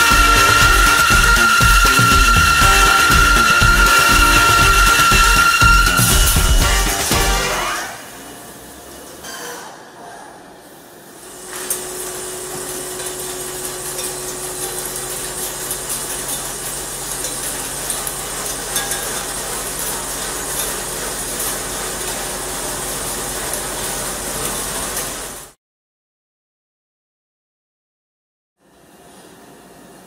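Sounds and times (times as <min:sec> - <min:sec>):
milling machine cutting metal: 0:00.0 - 0:08.0, 0:11.3 - 0:25.4
steady machine hum: 0:00.0 - 0:08.9.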